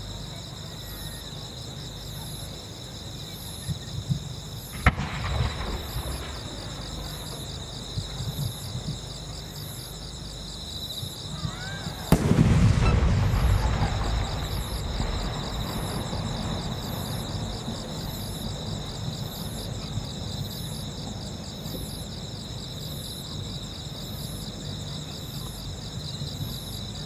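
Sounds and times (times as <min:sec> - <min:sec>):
crickets trilling: 0:00.0 - 0:27.0
high insect call: 0:00.0 - 0:27.0
firework burst rumble: 0:04.7 - 0:09.0, 0:11.9 - 0:19.6.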